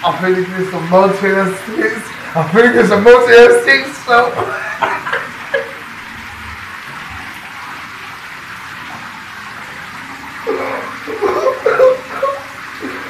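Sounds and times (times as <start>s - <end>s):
shower spray hissing: 8.9s - 13.0s.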